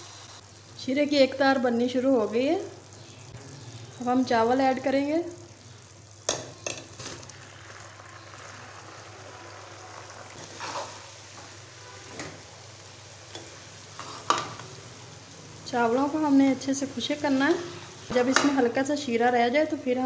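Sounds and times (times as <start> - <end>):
syrup bubbling with hiss: 1.7 - 18.1.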